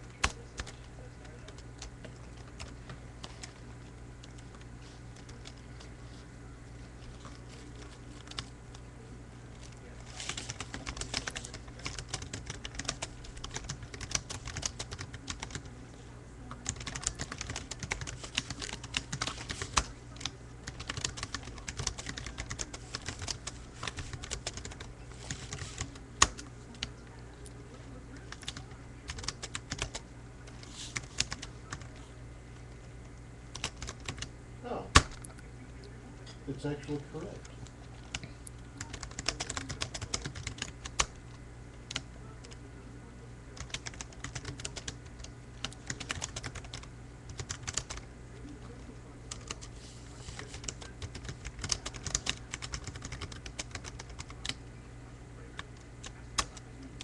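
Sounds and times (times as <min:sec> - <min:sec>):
typing on a computer keyboard: 0:10.2 - 0:15.7, 0:16.6 - 0:26.9, 0:28.3 - 0:31.9, 0:33.5 - 0:34.3, 0:38.8 - 0:41.2, 0:43.6 - 0:48.0, 0:49.3 - 0:49.6, 0:50.4 - 0:54.6, 0:55.6 - 0:56.6.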